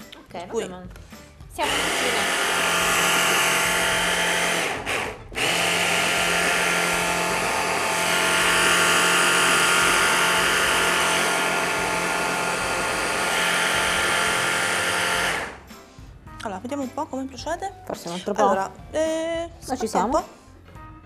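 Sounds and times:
electric hand blender running: 1.6s - 15.7s.

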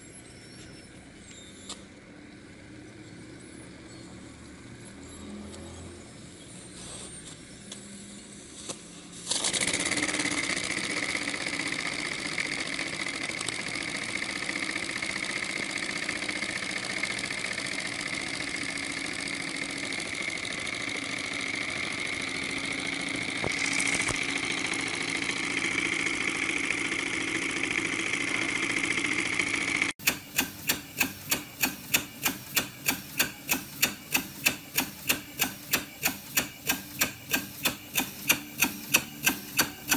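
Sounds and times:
model steam engine whirring: 9.6s - 39.9s
model steam engine chuffing: 9.8s - 23.4s, 24.2s - 39.9s.

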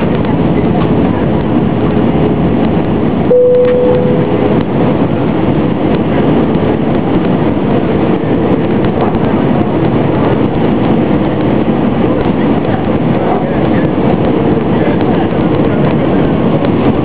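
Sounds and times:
airliner cabin engine noise: 0.0s - 17.0s
short steady tone: 3.3s - 4.6s.

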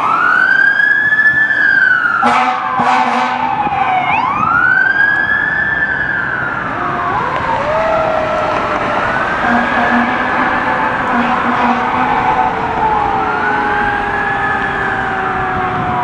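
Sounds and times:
fire engine siren wailing: 0.0s - 16.0s
air horn blasts: 2.2s - 3.5s, 9.4s - 12.4s
second siren tone: 6.7s - 16.0s.

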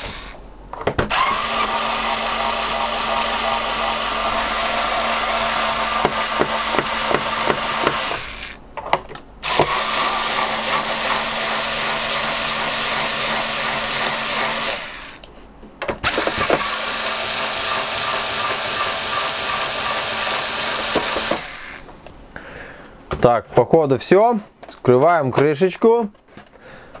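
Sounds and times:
electric screwdriver running: 1.1s - 8.6s, 9.4s - 15.2s, 16.0s - 21.8s.

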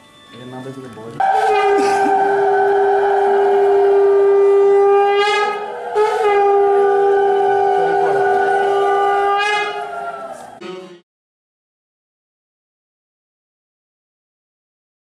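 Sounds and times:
conch shell blasts: 1.2s - 10.0s.

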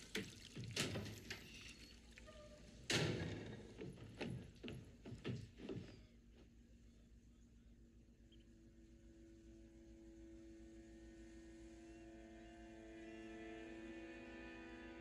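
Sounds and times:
footsteps on wooden floorboards: 3.4s - 6.5s.

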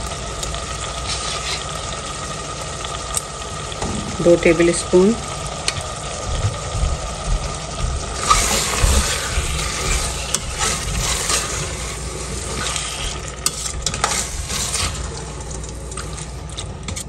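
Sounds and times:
sauce sizzling in hot oil: 0.0s - 17.0s
metal spoon scraping a pot: 8.2s - 15.2s.

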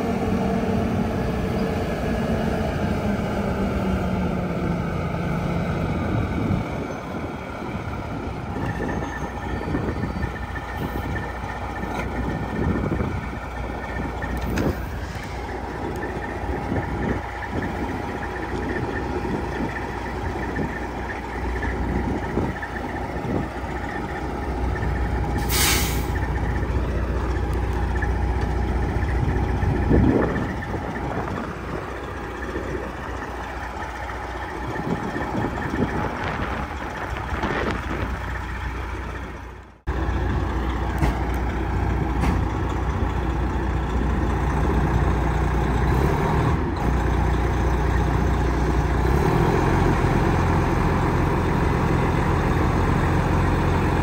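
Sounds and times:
diesel truck engine rumbling: 0.0s - 54.0s
sharp hiss of air: 25.4s - 26.2s.

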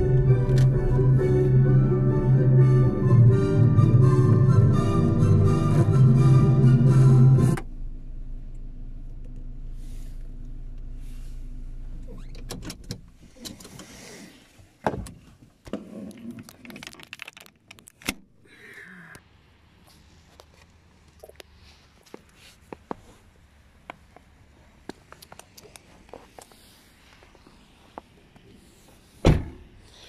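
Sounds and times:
car radio music: 0.0s - 7.7s
car engine hum in cabin: 0.0s - 13.8s.

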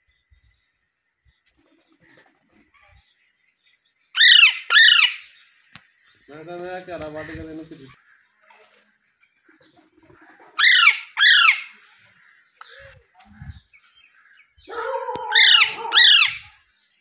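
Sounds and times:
parakeets screeching: 4.2s - 5.4s, 10.6s - 11.8s, 14.7s - 16.5s
lower even parakeet call: 14.7s - 16.5s.

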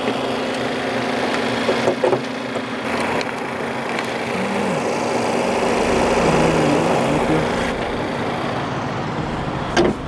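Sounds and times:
engine humming: 0.0s - 10.0s
short noises: 4.2s - 8.1s.

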